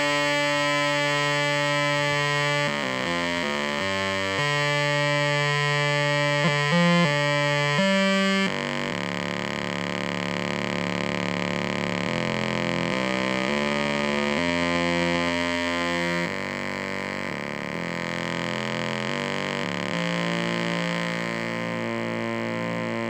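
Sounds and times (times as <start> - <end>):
buzzy synthesizer drone: 0.0 - 23.0.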